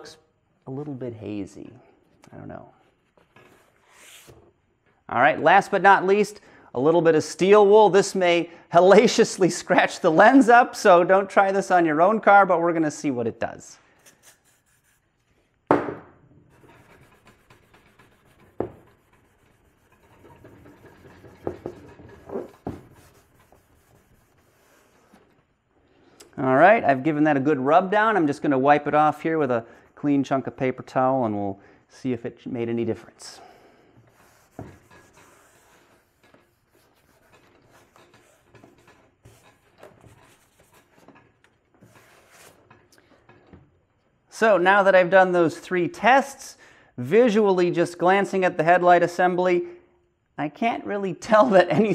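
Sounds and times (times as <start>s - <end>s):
paper towel wiping plastic: 16.5s - 25.4s, 34.1s - 41.1s
steel wool scratching plastic: 16.5s - 25.4s, 34.1s - 42.8s.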